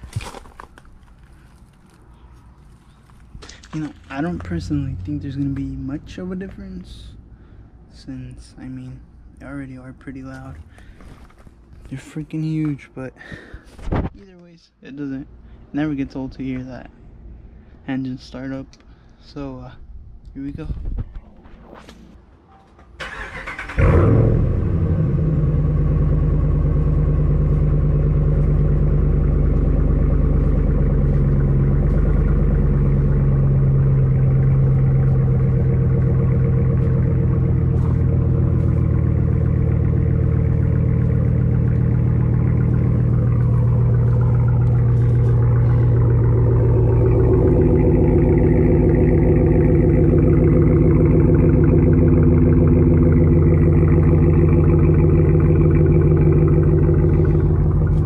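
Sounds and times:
engine revving and idling: 3.5 - 7.2, 23.0 - 58.0
engine starter cranking: 23.0 - 24.4.

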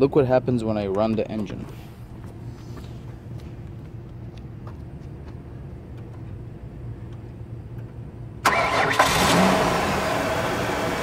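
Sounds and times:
faint low hum: 0.0 - 8.5
starter motor cranking: 8.4 - 9.8
car engine starting: 8.4 - 11.0.

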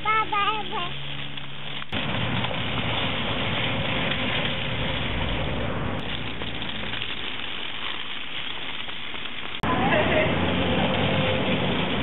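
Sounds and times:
toy stroller wheels rattling on concrete: 0.0 - 12.0.

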